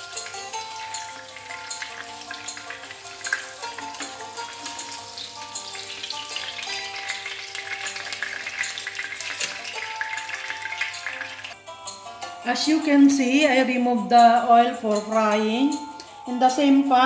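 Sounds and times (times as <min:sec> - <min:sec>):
fish sizzling in oil: 0:00.0 - 0:11.6
music of long held notes: 0:00.0 - 0:17.0.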